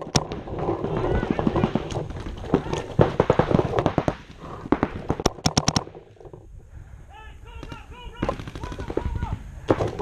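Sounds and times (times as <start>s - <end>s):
paintball markers firing: 1.3s - 6.0s, 7.6s - 10.0s.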